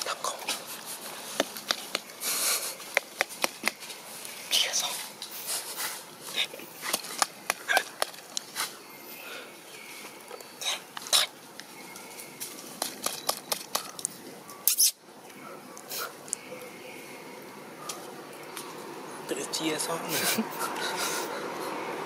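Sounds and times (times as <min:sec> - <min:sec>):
dry leaves crackling and rustling: 0:00.0 - 0:08.9, 0:09.6 - 0:14.3.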